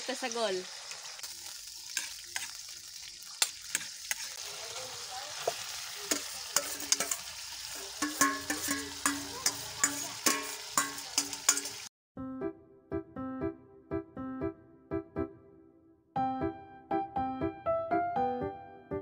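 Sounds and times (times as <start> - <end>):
food sizzling in wok: 0.0 - 11.9
metal spatula scraping wok: 1.7 - 11.9
spatula clicking on wok: 5.5 - 7.3, 8.0 - 11.8.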